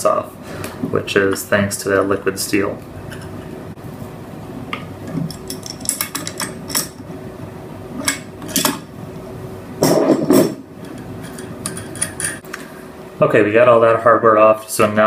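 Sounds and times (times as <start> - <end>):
metal nuts and washers clinking: 5.2 - 7.0, 9.8 - 12.4.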